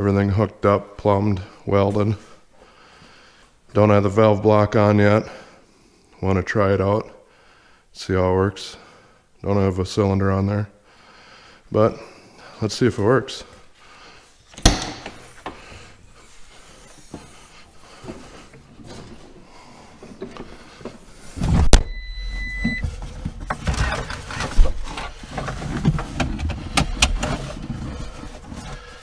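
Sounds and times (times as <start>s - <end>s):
short beep: 21.7s - 22.9s.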